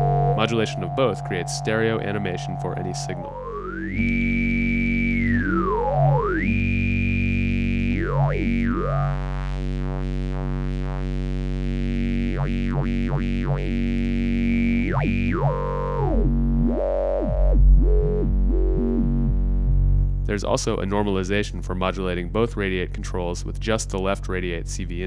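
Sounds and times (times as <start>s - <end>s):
buzzy synth drone with filter sweeps: 0.0s - 22.8s.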